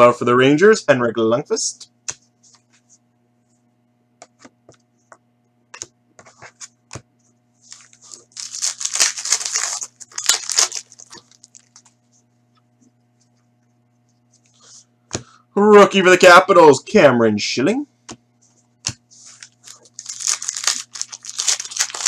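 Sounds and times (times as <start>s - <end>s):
foil pack tearing open: 7.7s - 11.8s, 19.4s - 22.0s.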